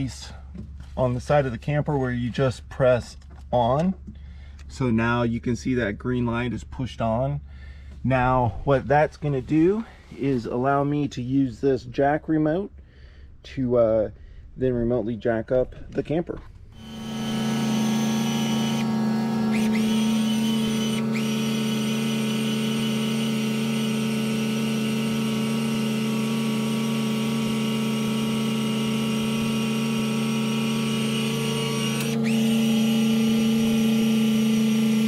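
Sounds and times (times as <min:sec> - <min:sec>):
electric jacks motor whine: 0:16.8 - 0:35.0.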